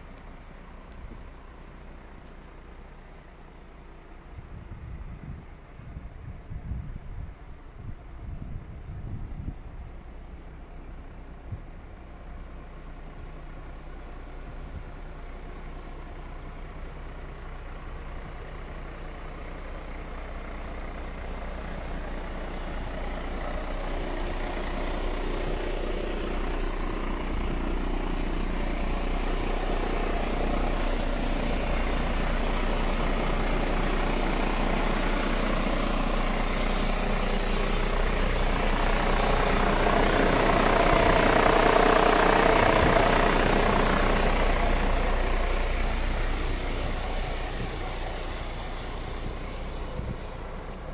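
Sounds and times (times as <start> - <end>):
truck diesel engine idling: 0.0 - 50.9.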